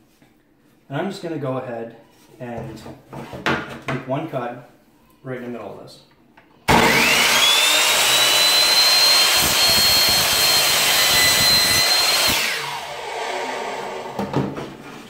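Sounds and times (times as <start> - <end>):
miter saw whining and cutting: 6.7 - 14.2.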